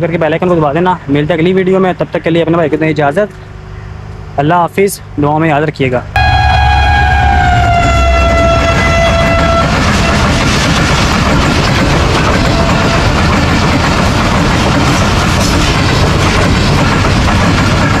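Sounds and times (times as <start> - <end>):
diesel locomotive horn: 6.2 - 10.4, 12.6 - 13.2
express train running past: 6.2 - 18.0.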